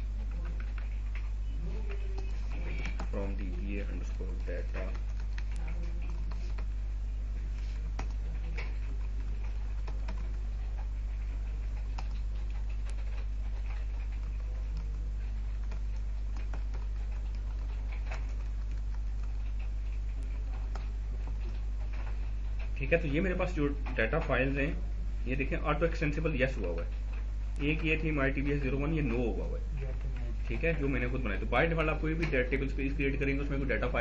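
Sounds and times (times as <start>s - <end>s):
keyboard typing: 0.0s - 6.8s, 7.4s - 24.6s.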